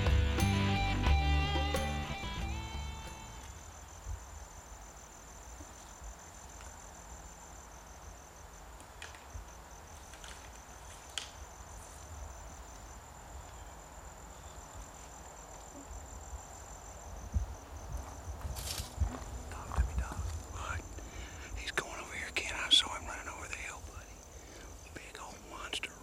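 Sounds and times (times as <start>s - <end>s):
insects trilling: 1.6s - 26.0s.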